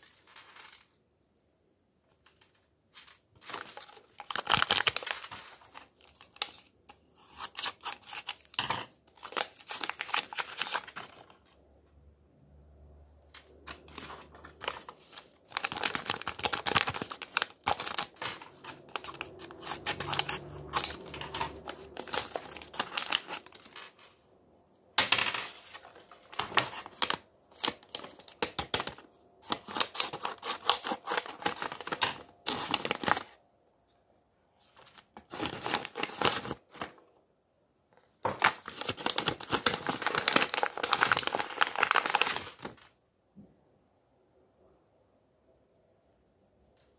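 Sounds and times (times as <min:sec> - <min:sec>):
paper rustling and crinkling: 0:00.0 - 0:01.0, 0:02.1 - 0:11.6, 0:13.3 - 0:24.2, 0:25.2 - 0:33.4, 0:34.6 - 0:37.0, 0:38.0 - 0:43.0.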